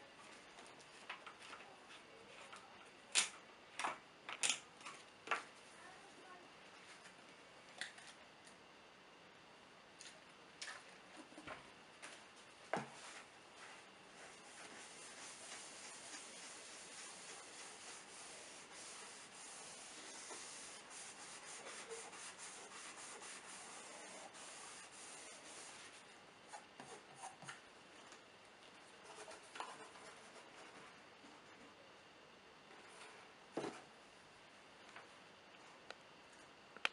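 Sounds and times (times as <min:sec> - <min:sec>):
paper towel scrubbing on paper: 0:13.0 - 0:26.0.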